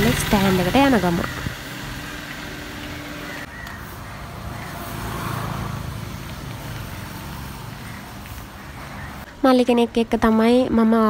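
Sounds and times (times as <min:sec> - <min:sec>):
vehicle passing: 0:00.0 - 0:09.3
road traffic: 0:00.0 - 0:11.0.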